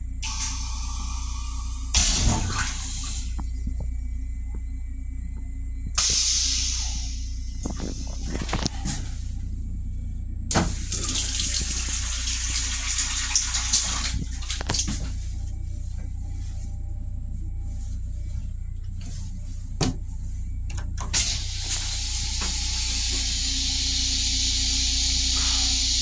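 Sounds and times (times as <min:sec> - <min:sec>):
steady low hum: 0:00.0 - 0:26.0
faucet water running into basin: 0:10.8 - 0:14.9.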